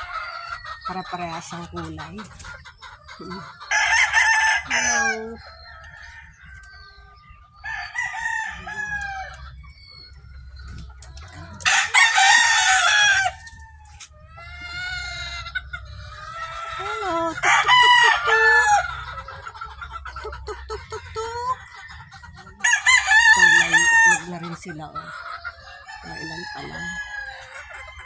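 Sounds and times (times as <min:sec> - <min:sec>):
hens clucking: 0:00.0 - 0:28.0
rooster crowing: 0:03.7 - 0:06.8, 0:07.6 - 0:09.4, 0:11.6 - 0:15.4, 0:17.4 - 0:18.9, 0:21.2 - 0:24.3, 0:25.9 - 0:28.0.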